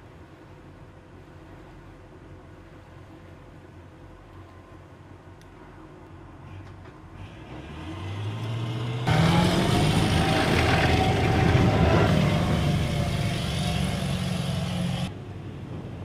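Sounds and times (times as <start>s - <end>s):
tracked vehicle diesel engine: 6.5s - 15.1s
steady engine whine: 6.6s - 16.0s.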